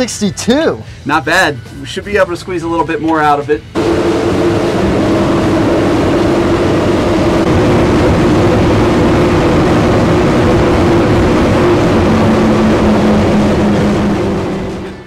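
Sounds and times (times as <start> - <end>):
rushing wind and water: 3.8 - 14.8
outboard motors at high speed: 3.8 - 15.0.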